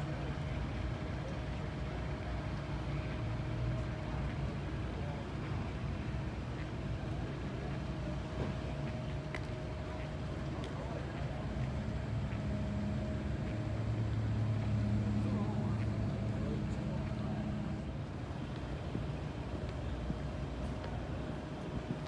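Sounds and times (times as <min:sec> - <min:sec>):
diesel truck engines idling: 0:00.0 - 0:22.0.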